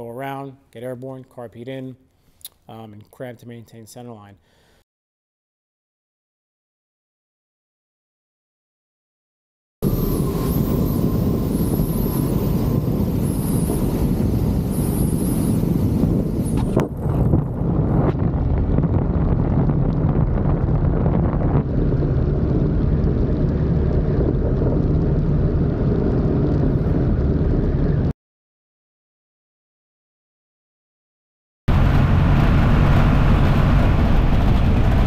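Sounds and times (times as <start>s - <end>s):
small aircraft engine running: 9.8s - 28.1s, 31.7s - 35.0s
wind rushing on microphone: 9.8s - 28.1s, 31.7s - 35.0s.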